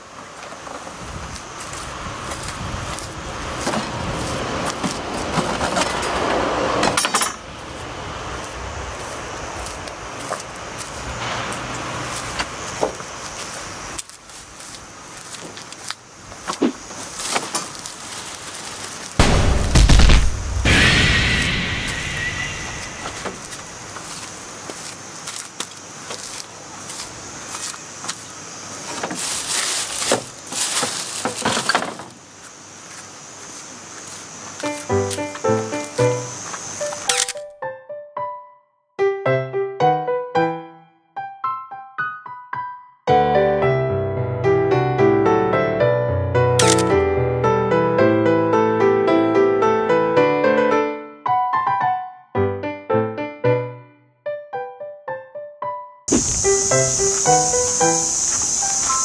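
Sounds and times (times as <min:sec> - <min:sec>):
gear knocking and clattering in cart: 0:02.4 - 0:07.4
rustling: 0:13.3 - 0:20.6, 0:22.7 - 0:35.9.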